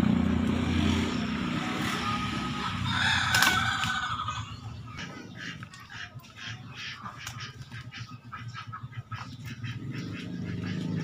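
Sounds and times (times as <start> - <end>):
rooster crowing: 2.0 - 4.6.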